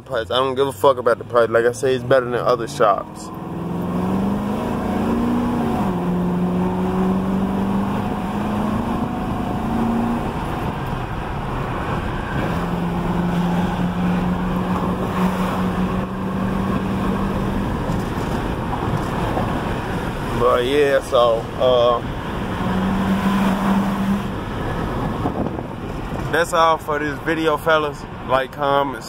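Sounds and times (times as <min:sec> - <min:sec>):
car engine hum: 0:00.0 - 0:29.0
tyre and wind noise: 0:03.3 - 0:20.5, 0:21.4 - 0:26.4.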